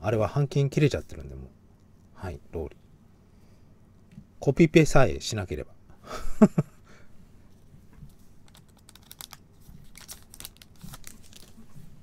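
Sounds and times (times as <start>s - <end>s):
trading cards clicking and scraping: 8.4s - 11.6s.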